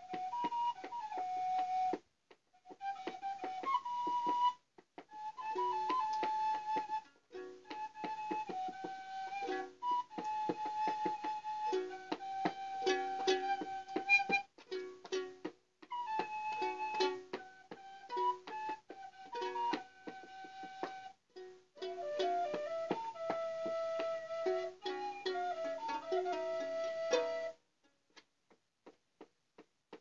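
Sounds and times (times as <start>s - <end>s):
plucked string chords: 7.4s - 15.5s, 16.1s - 27.5s
high held melody notes: 8.6s - 15.3s.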